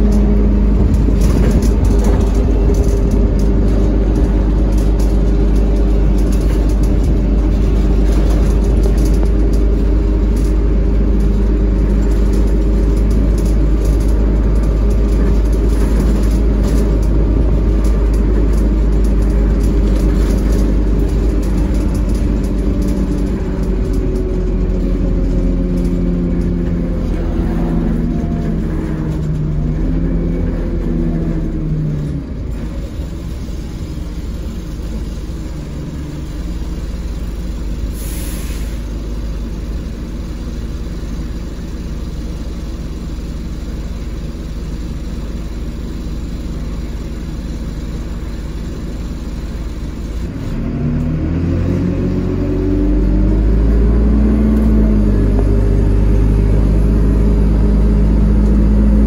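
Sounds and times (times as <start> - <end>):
bus engine whine: 0.0 - 59.0
low running rumble: 0.0 - 59.0.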